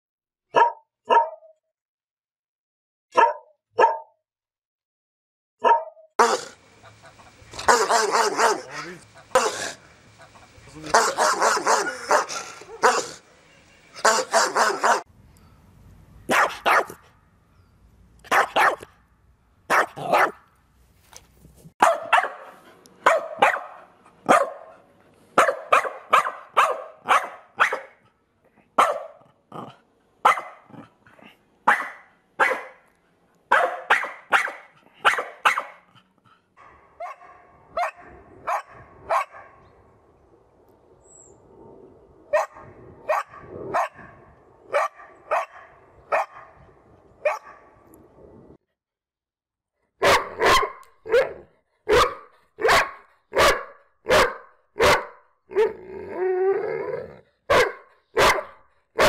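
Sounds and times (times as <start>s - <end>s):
dogs barking angrily: 5.6s - 13.3s, 14.0s - 15.1s, 16.3s - 17.1s, 18.2s - 19.0s, 19.7s - 20.5s, 21.8s - 28.1s, 28.7s - 39.6s, 42.3s - 46.6s, 50.0s - 55.8s, 57.4s - 59.0s.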